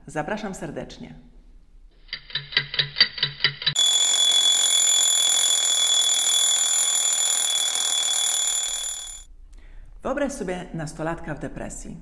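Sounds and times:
alarm bell ringing: 0:02.1 - 0:09.3.

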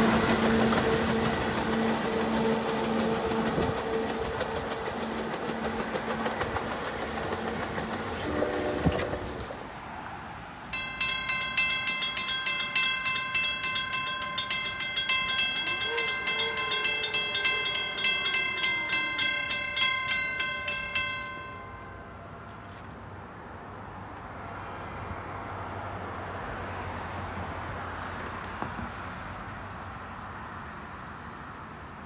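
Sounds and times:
railroad crossing bell ringing: 0:00.0 - 0:08.6, 0:10.7 - 0:22.8.

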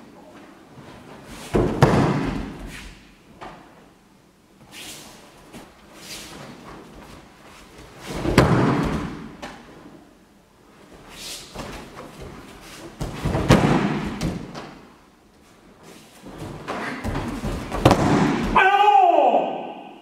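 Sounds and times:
bodies thudding on mats: 0:01.1 - 0:02.7, 0:06.5 - 0:09.6, 0:11.5 - 0:14.9, 0:16.2 - 0:18.6.

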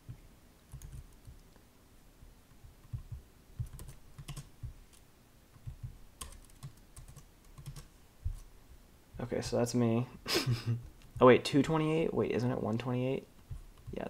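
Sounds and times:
typing on keyboard: 0:00.7 - 0:01.6, 0:02.6 - 0:07.9.

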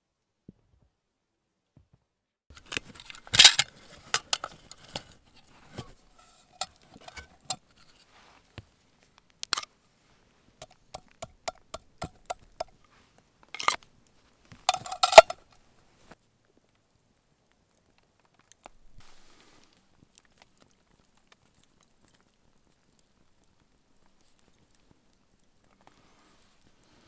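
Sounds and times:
metal mess tin clinking: 0:02.5 - 0:07.6, 0:13.6 - 0:13.8, 0:14.6 - 0:15.4
sharp clicks and knocks: 0:10.6 - 0:12.8.

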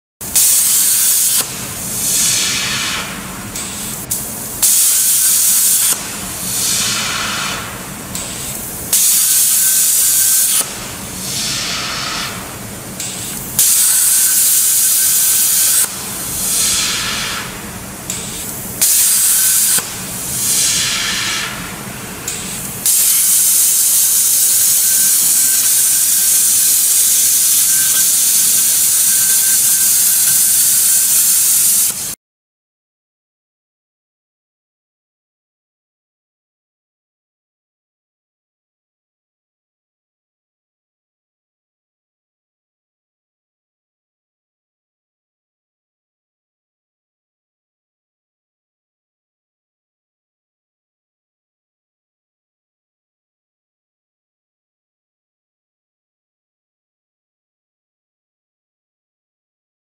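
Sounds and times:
gas hissing: 0:00.3 - 0:12.4, 0:13.0 - 0:32.2
plasma torch cutting metal: 0:00.3 - 0:32.2.

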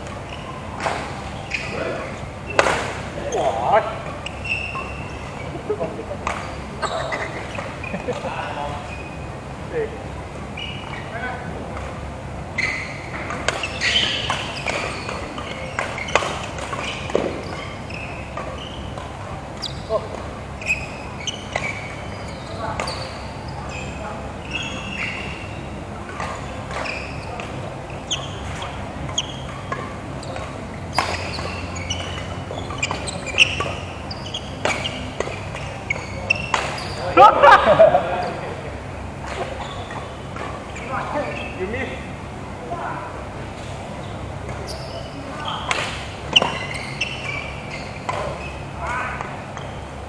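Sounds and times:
racket hitting shuttlecock: 0:00.0 - 0:03.2, 0:13.1 - 0:20.4, 0:24.7 - 0:37.1
shoes squeaking on court: 0:00.0 - 0:50.0.

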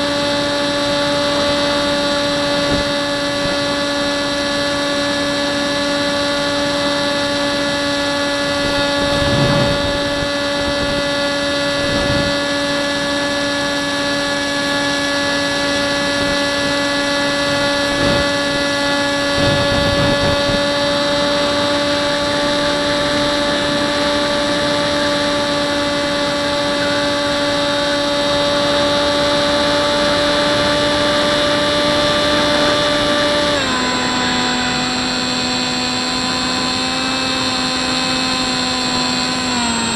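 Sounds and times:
electric motor and propeller whining: 0:00.0 - 0:39.9
wind buffeting rumble: 0:07.8 - 0:12.6, 0:15.6 - 0:35.6.

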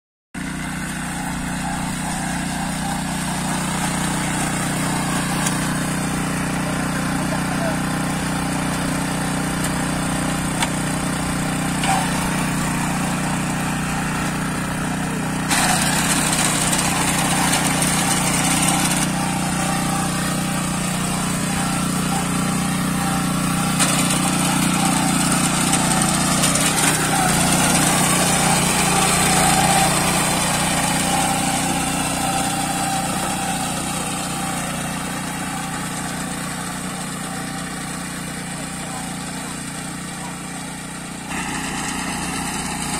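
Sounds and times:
small reaper engine running: 0:00.4 - 0:42.9.

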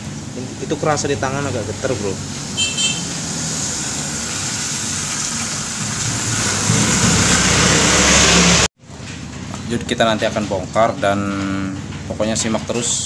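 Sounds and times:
engine running: 0:00.0 - 0:08.7.

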